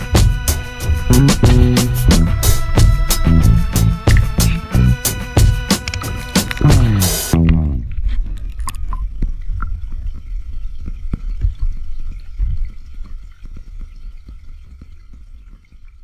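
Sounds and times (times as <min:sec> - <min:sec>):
drip-like pops and clicks: 0:08.2 - 0:16.0.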